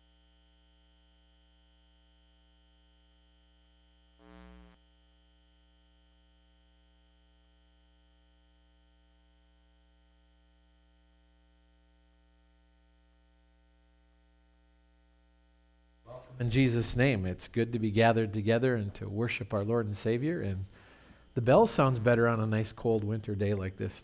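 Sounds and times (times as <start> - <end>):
burst of buzzing hum: 0.0 - 17.2
faint electrical hum: 0.0 - 24.0.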